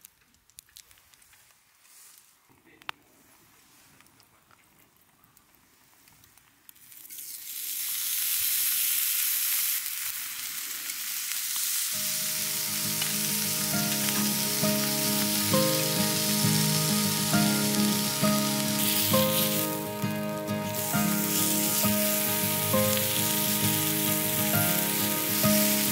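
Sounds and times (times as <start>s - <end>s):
steaks sizzling on a griddle: 7.0s - 25.9s
background music: 12.0s - 25.9s.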